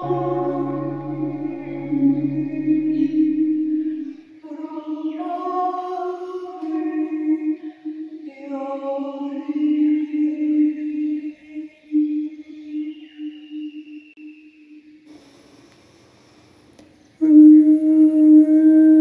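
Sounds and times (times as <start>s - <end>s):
low drone: 0.0s - 4.4s
wordless singing: 0.0s - 14.0s.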